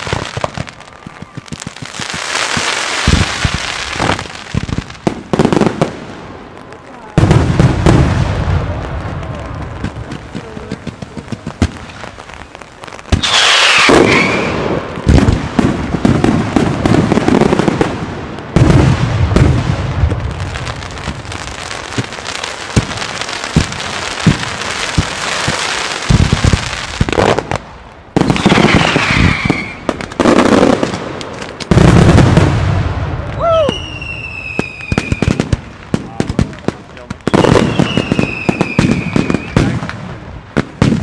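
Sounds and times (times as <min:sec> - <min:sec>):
dense firework crackle: 0:00.0 - 0:41.0
firework bangs: 0:00.0 - 0:41.0.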